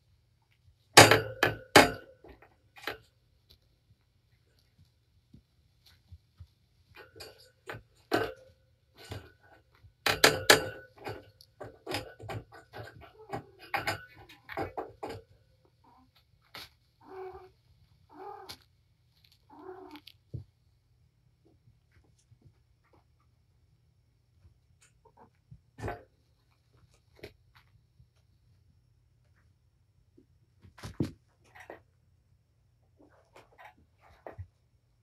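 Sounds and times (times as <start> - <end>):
cat meowing: 17.0 - 18.6, 19.5 - 20.1.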